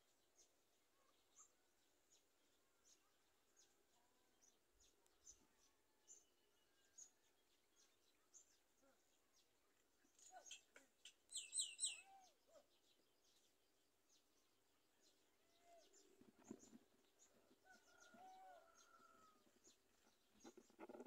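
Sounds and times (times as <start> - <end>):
thin high bird chirps: 10.2 - 12.4
loud squeaky bird calls: 10.4 - 12.4.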